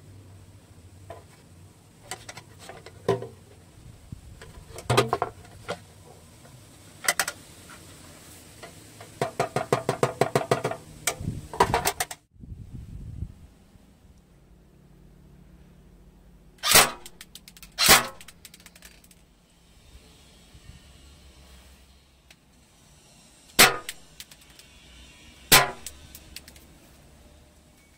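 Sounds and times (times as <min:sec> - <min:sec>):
rattling clicks: 0:17.0 - 0:19.2, 0:25.8 - 0:26.7.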